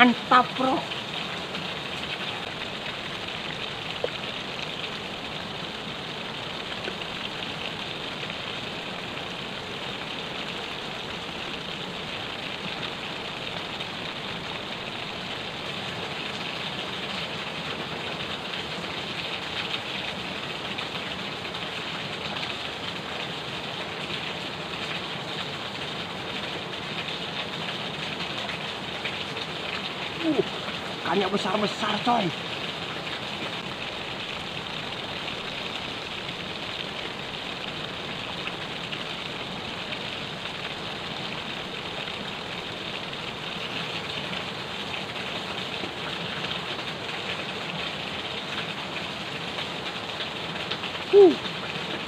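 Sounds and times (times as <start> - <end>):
river water rushing: 25.4 - 52.0.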